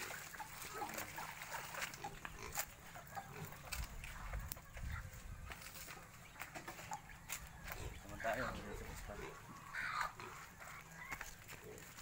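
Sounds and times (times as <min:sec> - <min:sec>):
pigs grunting: 0:00.0 - 0:04.3, 0:07.7 - 0:12.0.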